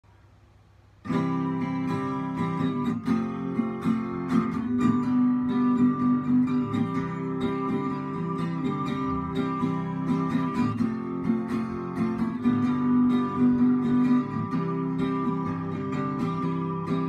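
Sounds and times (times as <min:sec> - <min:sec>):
acoustic guitar strumming: 0:01.0 - 0:17.0.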